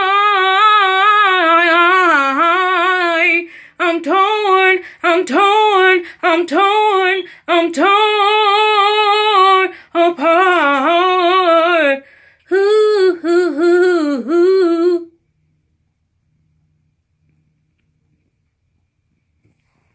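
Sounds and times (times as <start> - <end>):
woman singing unaccompanied: 0.0 - 15.2.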